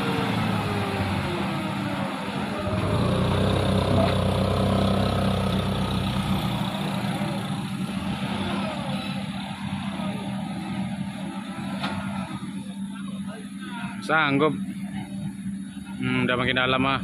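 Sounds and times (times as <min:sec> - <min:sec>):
truck diesel engine running: 0:00.0 - 0:17.0.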